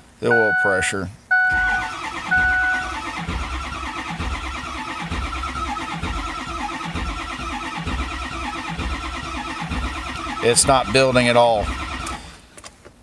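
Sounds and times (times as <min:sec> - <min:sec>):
dashboard warning chime: 0:00.2 - 0:03.1
diesel engine cranking on starter: 0:01.3 - 0:12.5.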